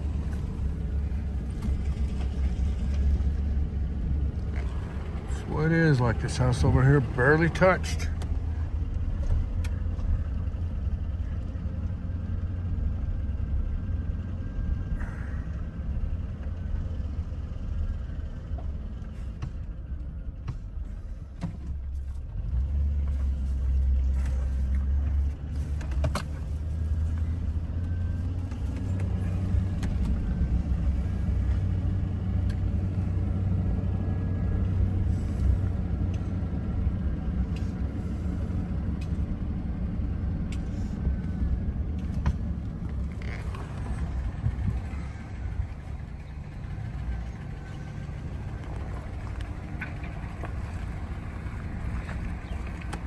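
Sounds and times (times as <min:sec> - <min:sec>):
car engine and road noise: 0:00.0 - 0:53.0.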